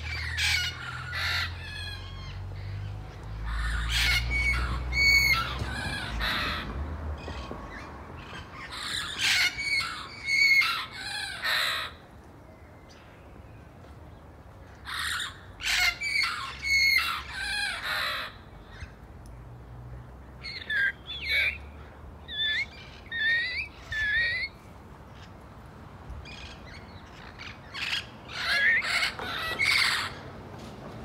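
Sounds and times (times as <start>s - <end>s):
parrots squawking: 0.0s - 7.5s, 8.6s - 12.0s, 14.8s - 18.9s, 20.4s - 21.6s, 22.3s - 24.6s, 27.4s - 30.2s.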